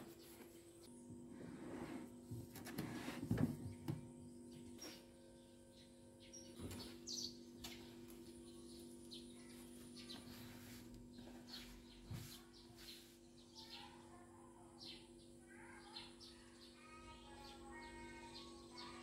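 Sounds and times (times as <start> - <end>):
steady low hum: 0.0 - 15.6
small bird chirps: 4.2 - 19.0.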